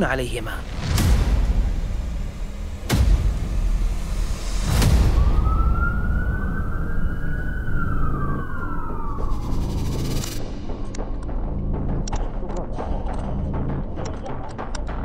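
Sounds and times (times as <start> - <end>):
low rumble: 0.1 - 15.0
sharp hit: 0.6 - 10.9
siren wail: 4.2 - 10.5.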